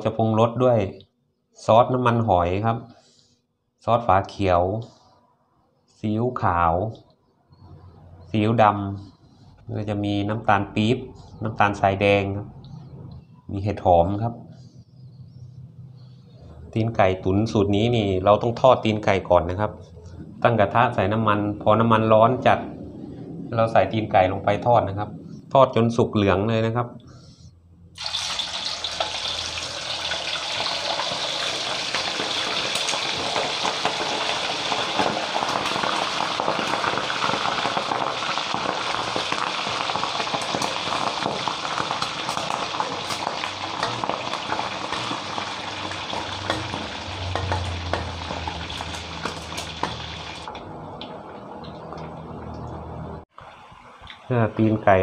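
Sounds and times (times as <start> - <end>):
food deep-frying in hot oil: 28.0 - 53.2.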